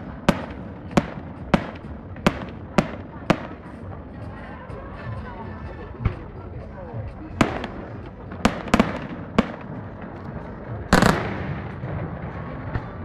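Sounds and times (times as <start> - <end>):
fireworks bursting: 0.0 - 3.7, 7.4 - 13.0.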